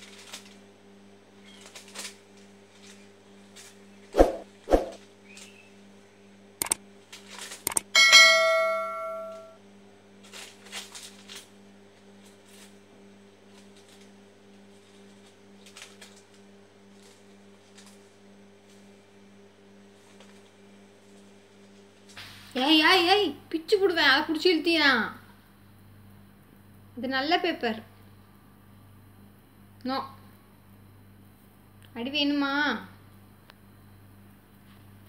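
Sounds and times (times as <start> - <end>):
steady low hum: 0.0 - 35.0
sharp clicks: 6.6 - 6.8, 7.6 - 7.9
bell ding: 8.0 - 9.6
dog chewing paper: 10.2 - 12.8, 13.4 - 19.0.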